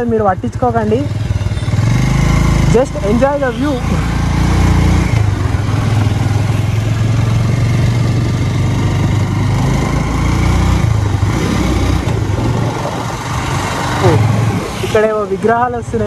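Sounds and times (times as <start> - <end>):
motorcycle engine running: 0.0 - 16.0
wind noise: 10.7 - 16.0.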